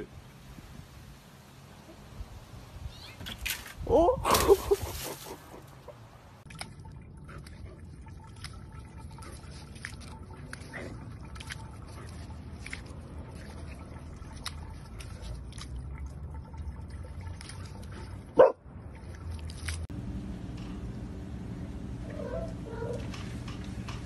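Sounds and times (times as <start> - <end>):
water splashes: 4.1 - 19.9
dog barking: 18.4 - 18.6, 22.1 - 23.0.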